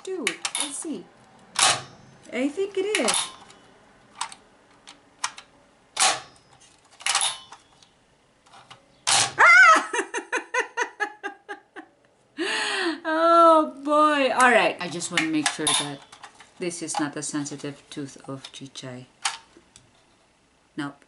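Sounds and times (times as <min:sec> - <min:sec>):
toy jaw snapping shut: 0:09.0 - 0:09.4
woman laughing: 0:09.4 - 0:13.0.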